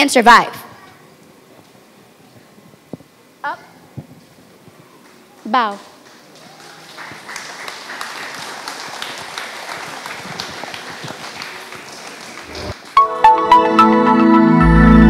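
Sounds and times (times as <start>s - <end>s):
audience applauding: 5.0s - 13.1s
music: 13.0s - 15.0s.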